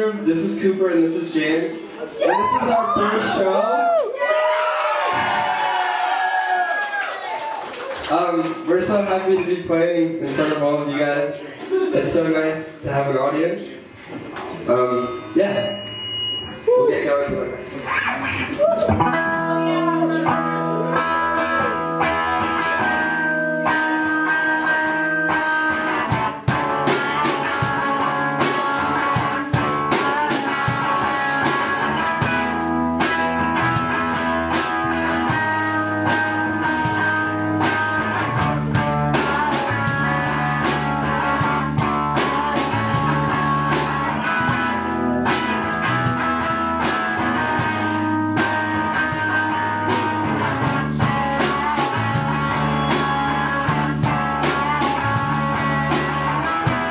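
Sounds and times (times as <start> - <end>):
drum kit beat: 9.3 - 10.6, 11.5 - 12.0, 18.5 - 56.9
amplified guitars: 13.9 - 56.9.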